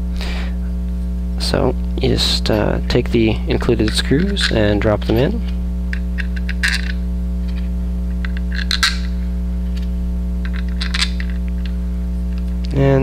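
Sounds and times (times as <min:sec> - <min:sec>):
electrical hum: 0:00.0 - 0:13.0
small metal screws clinking: 0:05.9 - 0:07.6, 0:08.2 - 0:09.1, 0:10.4 - 0:11.4.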